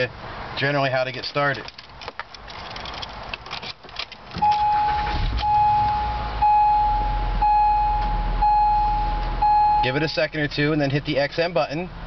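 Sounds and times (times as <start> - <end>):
car warning chime beeping: 4.4 - 10.4.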